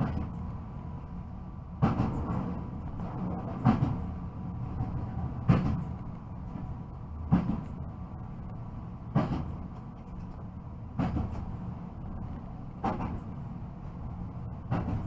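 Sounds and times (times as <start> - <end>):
train running rumble: 0.0 - 15.0
train wheels clacking over rail joints: 1.8 - 4.2, 4.8 - 7.8, 9.1 - 11.6, 12.8 - 13.4, 14.6 - 15.0.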